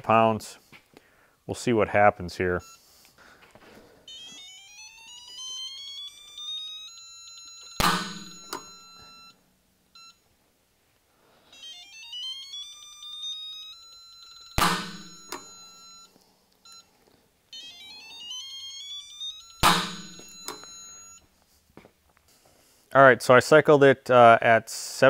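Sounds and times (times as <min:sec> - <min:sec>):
metallic ringing: 0:07.8 - 0:09.1, 0:14.5 - 0:15.8, 0:19.6 - 0:21.0.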